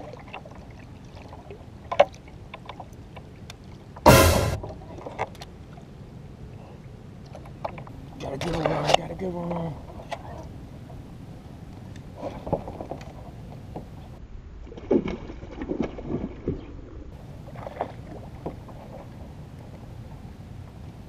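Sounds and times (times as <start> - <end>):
knocks on kayak: 4.1 - 4.8.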